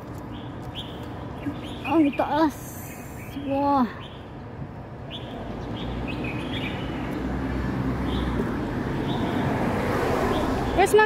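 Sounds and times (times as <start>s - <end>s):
passing vehicles rumbling: 0.0s - 11.0s
street traffic hum: 0.0s - 11.0s.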